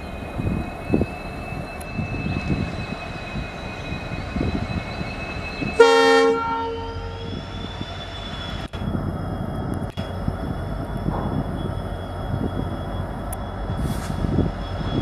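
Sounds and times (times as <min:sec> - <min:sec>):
locomotive engine rumble: 0:00.0 - 0:15.0
train horn blast: 0:05.8 - 0:07.2.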